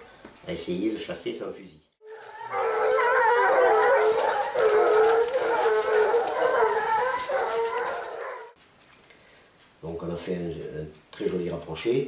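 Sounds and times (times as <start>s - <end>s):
hounds baying in chorus: 2.0s - 8.6s.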